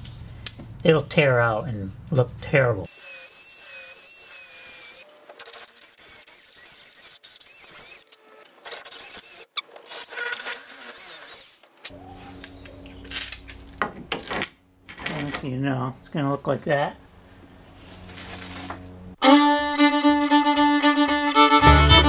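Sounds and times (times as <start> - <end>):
drill whirring through wood: 2.9 - 11.7
steady low hum: 15.5 - 21.2.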